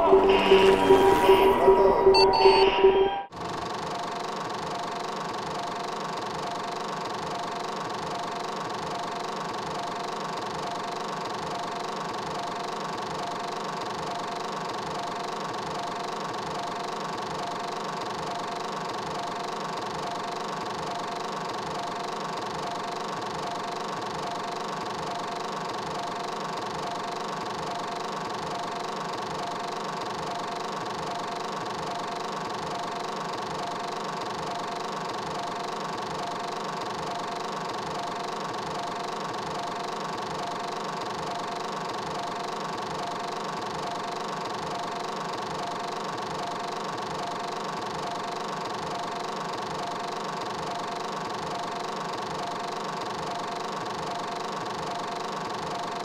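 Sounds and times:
machine drone: 0.0 - 3.3.

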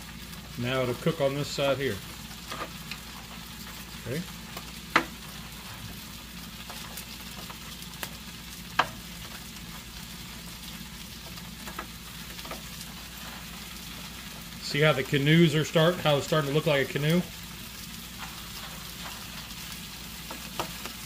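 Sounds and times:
sausages sizzling on a griddle: 0.0 - 21.0
tongs clicking on griddle: 6.7 - 9.4, 11.2 - 13.4, 18.2 - 21.0.

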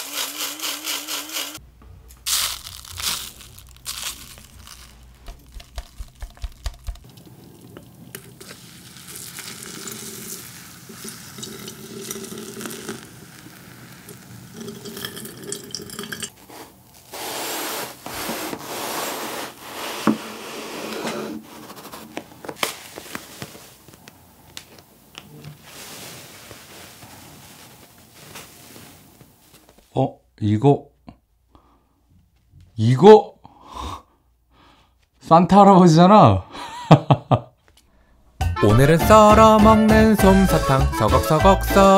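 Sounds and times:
cotton candy pulled apart: 2.2 - 7.1, 8.2 - 11.5
water pouring over coffee grounds: 2.3 - 7.0, 8.0 - 16.3.

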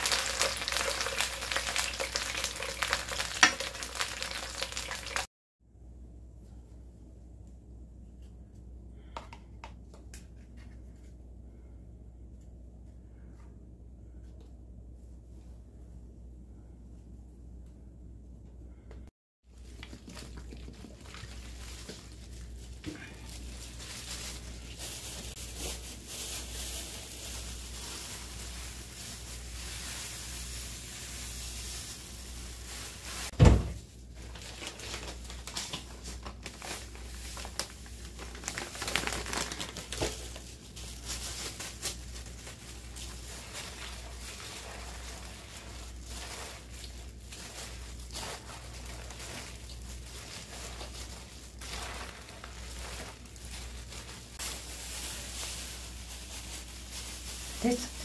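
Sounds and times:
low steady hum: 5.6 - 38.8
cabbage and gloves rustling: 19.5 - 58.0
loud thump: 33.4 - 33.8.

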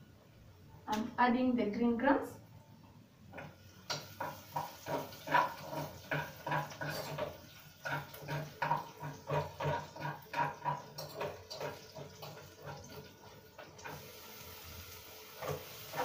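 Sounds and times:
sizzle from pot: 3.2 - 16.0.

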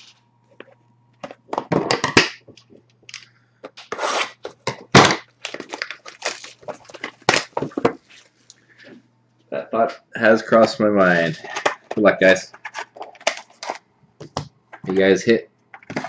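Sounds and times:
plastic wrap crinkling: 5.3 - 8.4.

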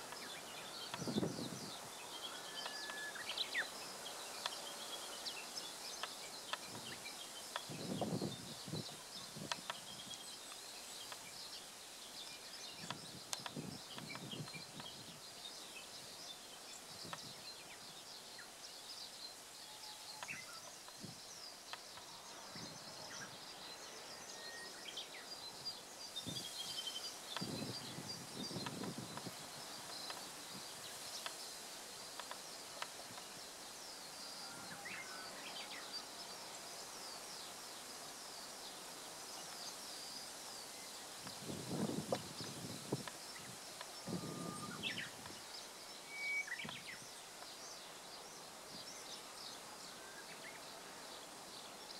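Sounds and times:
small birds chirping: 0.0 - 51.9
steady background hiss: 0.0 - 51.9
wind bumps on microphone: 1.0 - 1.8, 7.7 - 9.6, 27.4 - 29.4, 41.3 - 45.2.

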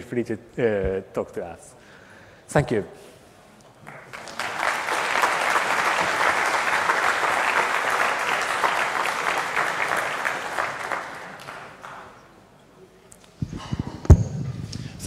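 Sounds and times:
audience applauding: 3.8 - 12.3.

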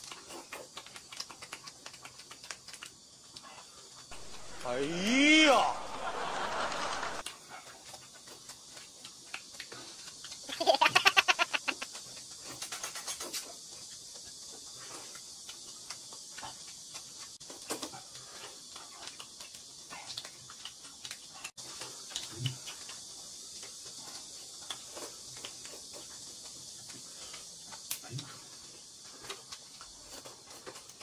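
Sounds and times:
noodles slurped and chewed: 0.0 - 4.6, 11.8 - 31.0
faint steady hiss: 0.0 - 31.0.

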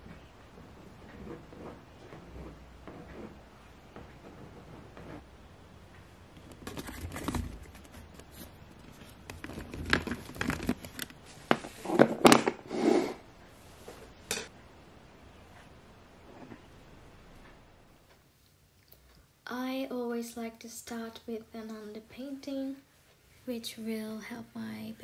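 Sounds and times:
paint tubes crinkling and clicking: 6.4 - 12.5.

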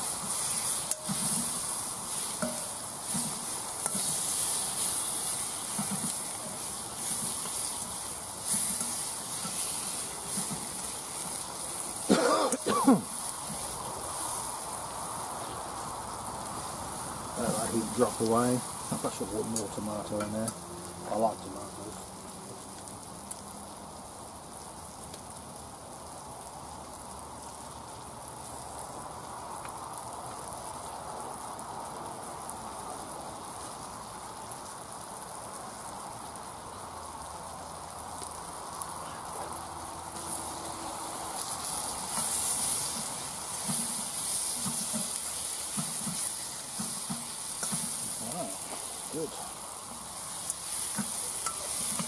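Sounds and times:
spatula stirring a pan: 0.0 - 15.8, 40.2 - 52.0
tomatoes sizzling in a wok: 0.0 - 52.0.

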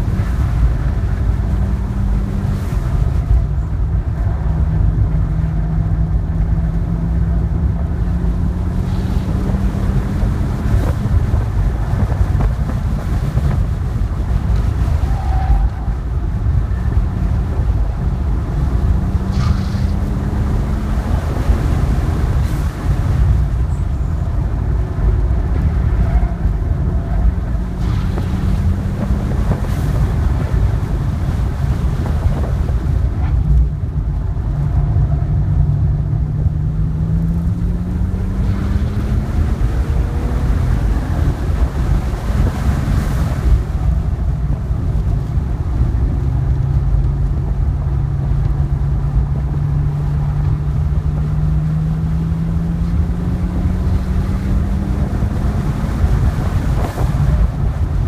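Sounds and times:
car engine accelerating: 0.0 - 58.0
wind and road noise: 0.0 - 58.0.

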